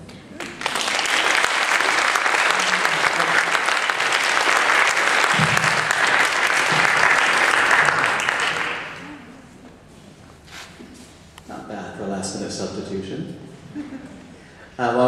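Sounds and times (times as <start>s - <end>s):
audience applauding: 0.3s - 9.3s.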